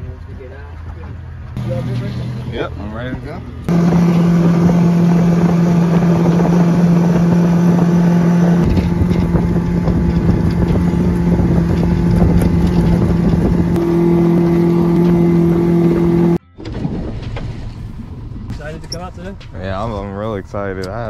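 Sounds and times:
outboard motor running: 0:01.5 - 0:16.4
wind on microphone: 0:03.7 - 0:16.4.

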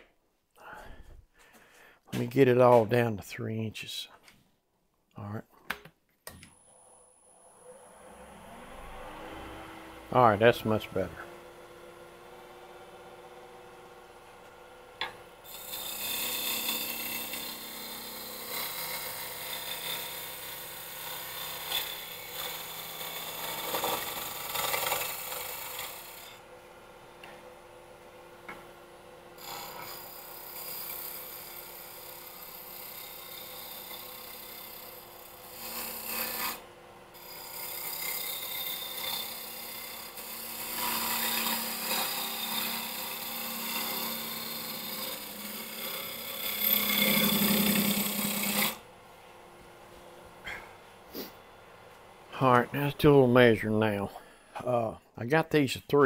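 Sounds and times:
lathe motor humming: 0:07.2 - 0:48.8
lathe gouge scraping wood: 0:15.4 - 0:26.4, 0:29.4 - 0:48.9.

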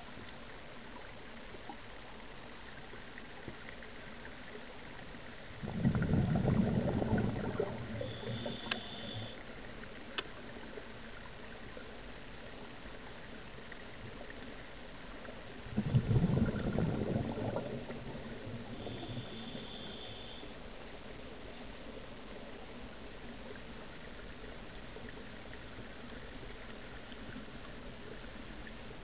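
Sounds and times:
exhaled bubbles from regulator: 0:05.4 - 0:09.4, 0:15.6 - 0:20.4
underwater hiss: 0:05.6 - 0:09.4, 0:15.8 - 0:20.6
high hiss of inhalation: 0:08.0 - 0:09.4, 0:18.7 - 0:20.5.

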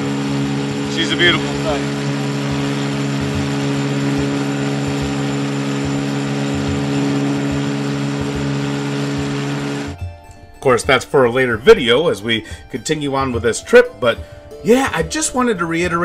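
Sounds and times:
boat motor droning: 0:00.0 - 0:10.0.

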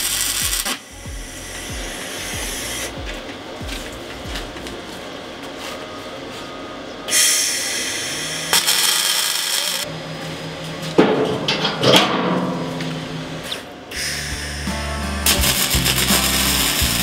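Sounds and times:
welder arc crackling: 0:00.0 - 0:03.0, 0:08.5 - 0:09.9, 0:15.2 - 0:17.0.

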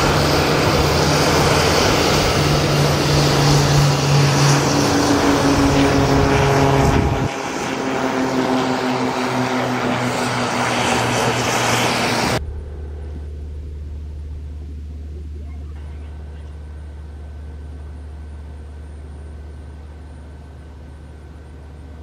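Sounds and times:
propeller plane engines droning: 0:00.0 - 0:22.0
low steady rumble: 0:12.4 - 0:22.0.

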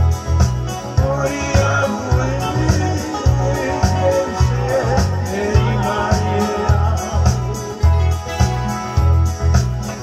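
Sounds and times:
acoustic guitar strumming: 0:00.0 - 0:10.0
man singing: 0:00.7 - 0:08.5.

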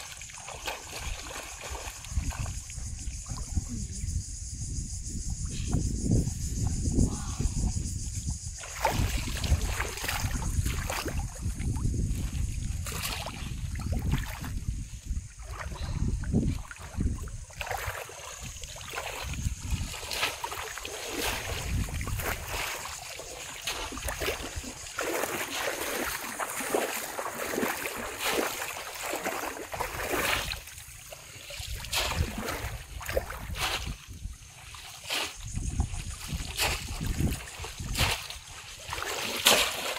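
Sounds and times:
fish trap splashing in water: 0:00.0 - 0:02.6, 0:08.6 - 0:11.4, 0:16.6 - 0:34.1, 0:34.7 - 0:39.9.

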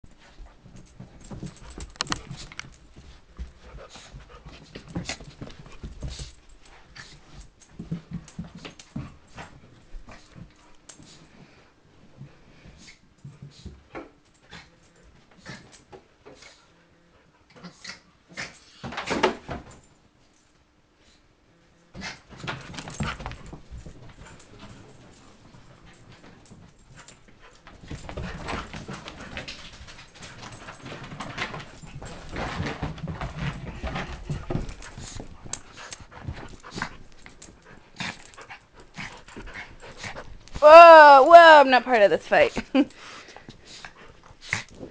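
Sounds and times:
dogs scuffling on carpet: 0:00.1 - 0:13.9, 0:22.0 - 0:40.6.

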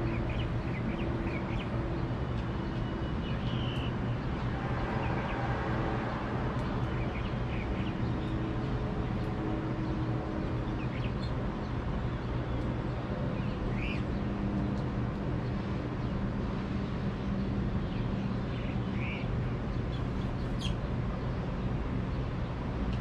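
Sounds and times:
low rumble of city traffic: 0:00.0 - 0:23.0
finch chirps: 0:13.4 - 0:14.1, 0:17.9 - 0:20.8.

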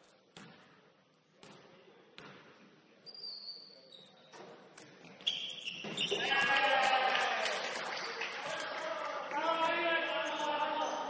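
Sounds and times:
shoe squeak: 0:03.0 - 0:06.2.

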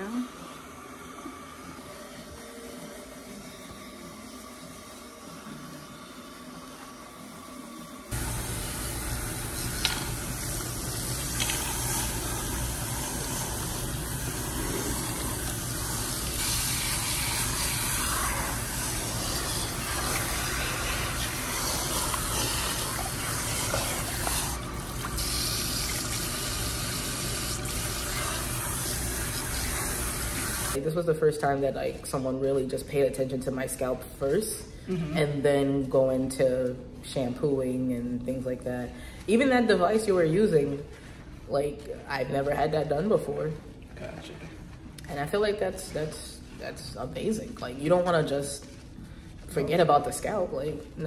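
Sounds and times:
water spraying from sprayer: 0:08.1 - 0:30.8.

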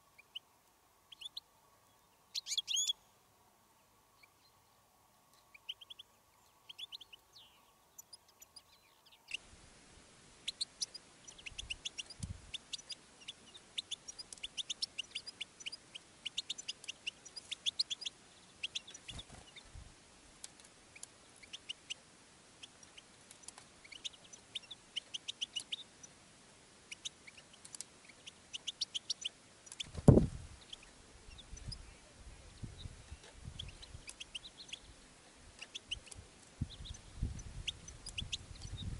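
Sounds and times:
goldfinches chirping: 0:01.1 - 0:03.1, 0:03.7 - 0:09.4, 0:10.4 - 0:19.6, 0:30.6 - 0:38.9.

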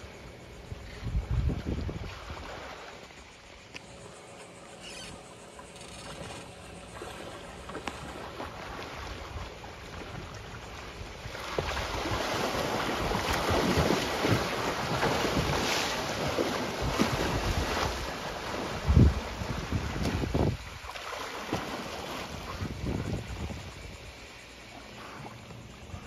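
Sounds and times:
dolphins splashing in water: 0:00.0 - 0:26.0
wind buffeting microphone: 0:00.7 - 0:02.7, 0:11.0 - 0:20.9, 0:21.6 - 0:24.1.

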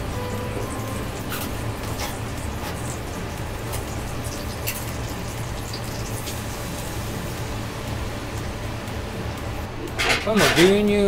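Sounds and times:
bacon sizzling in a pan: 0:00.0 - 0:08.6
steady low hum: 0:00.0 - 0:10.4.

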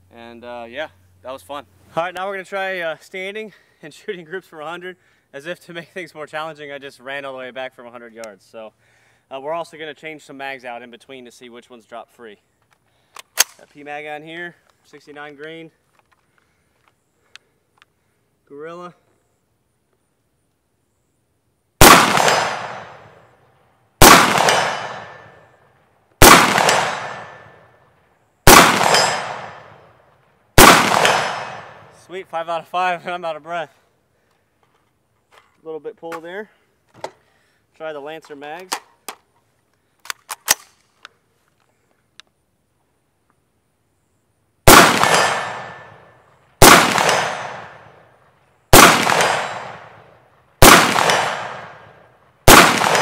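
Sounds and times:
rifle shots echoing: 0:21.8 - 0:23.2, 0:24.0 - 0:25.5, 0:26.2 - 0:27.8, 0:28.4 - 0:30.0, 0:30.6 - 0:32.0, 0:44.6 - 0:48.1, 0:48.7 - 0:50.0, 0:50.6 - 0:53.0.

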